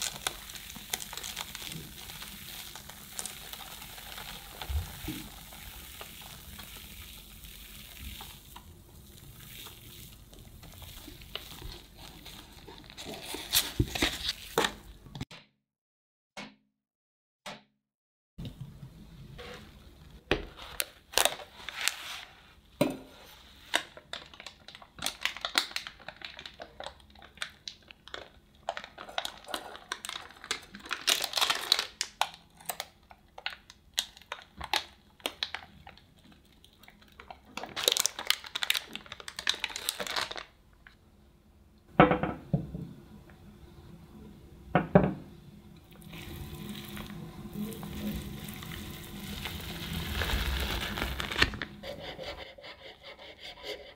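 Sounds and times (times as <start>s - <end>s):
parchment paper crinkling and tearing: 0.0s - 14.9s, 20.6s - 22.3s, 23.7s - 40.5s, 46.2s - 52.5s.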